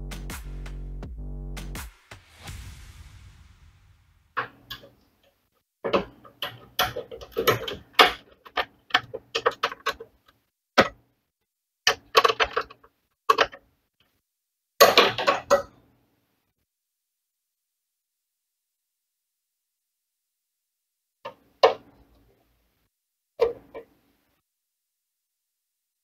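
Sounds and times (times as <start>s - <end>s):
clicks and metallic knocks of handling: 5.8s - 11.0s.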